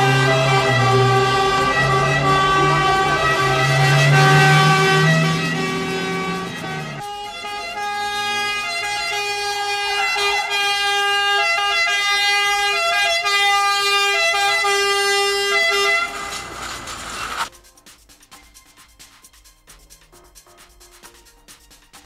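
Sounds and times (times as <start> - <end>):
ambulance siren: 0.0 - 17.5.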